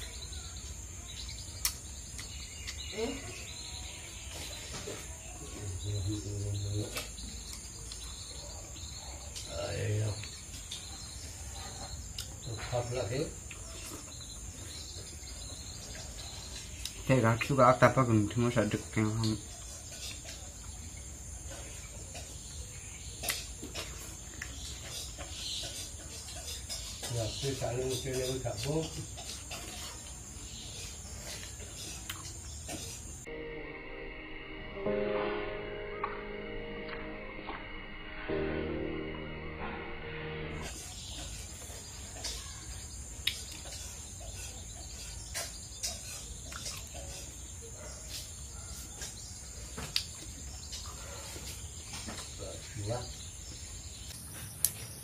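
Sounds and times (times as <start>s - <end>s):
fruit being bitten and chewed: 1.6s - 2.9s, 28.6s - 33.1s, 43.1s - 47.4s, 49.8s - 50.9s.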